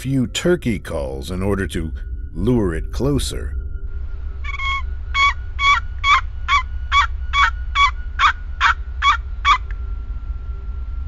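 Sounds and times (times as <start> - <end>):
turkey call yelps: 4.4 - 9.7.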